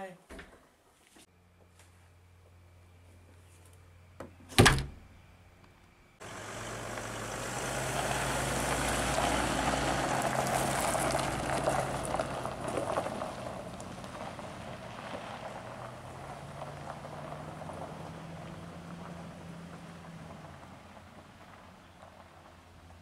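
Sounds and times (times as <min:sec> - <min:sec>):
door shutting thud: 0:04.2 - 0:05.1
van engine driving off: 0:06.2 - 0:23.0.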